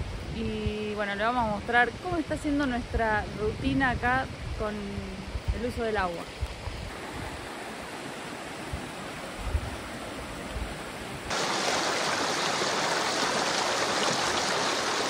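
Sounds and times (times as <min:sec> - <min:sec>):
river water rushing: 0:06.9 - 0:15.0.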